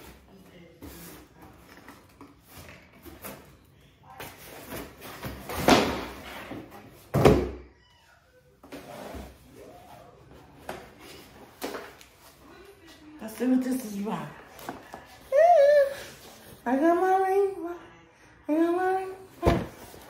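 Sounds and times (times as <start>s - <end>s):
cardboard rustling and scraping: 0.0s - 3.5s.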